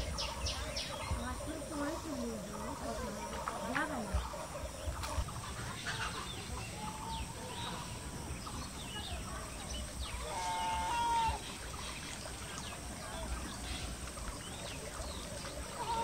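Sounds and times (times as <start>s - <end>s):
chickens clucking: 0.0s - 16.0s
drawn-out fowl call: 10.2s - 11.5s, 15.7s - 16.0s.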